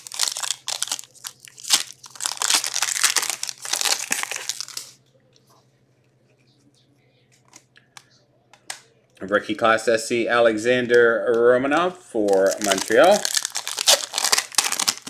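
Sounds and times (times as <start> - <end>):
wrapper crinkling and tearing: 0.0 - 5.0, 12.2 - 15.0.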